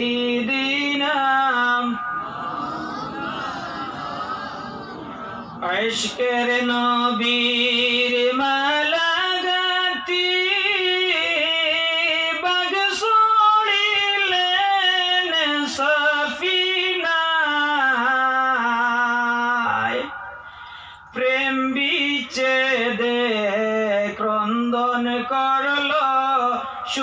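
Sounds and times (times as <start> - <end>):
man singing devotional chant: 0.0 - 2.5, 5.6 - 27.0.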